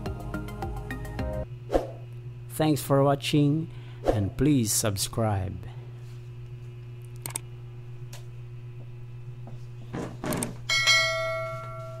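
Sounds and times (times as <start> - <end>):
bell chime: 10.7 - 12.0.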